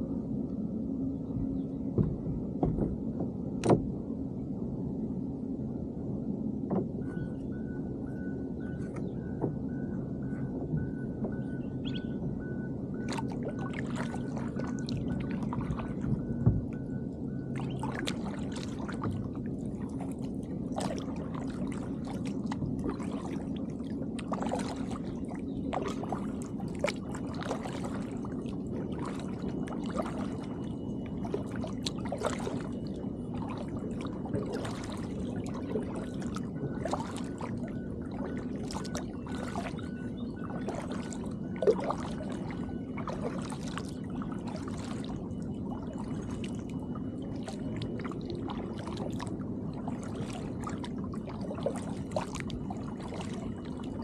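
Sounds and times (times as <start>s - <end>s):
low hum: 0.0s - 54.0s
kayak paddle splashing water: 13.0s - 16.2s, 17.5s - 54.0s.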